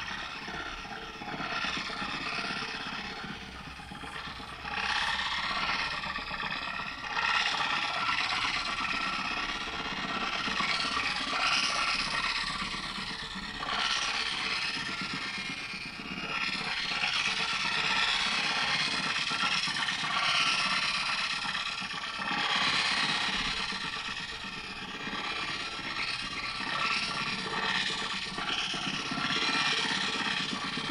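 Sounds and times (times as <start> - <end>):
noisy granular effects texture: 0.0 - 21.6.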